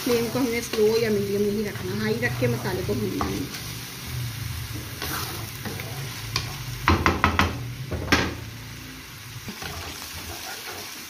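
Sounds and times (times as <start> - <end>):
metal spatula scraping pan: 0.0 - 3.8, 4.7 - 6.9, 9.5 - 11.0
masala sizzling in frying pan: 0.0 - 11.0.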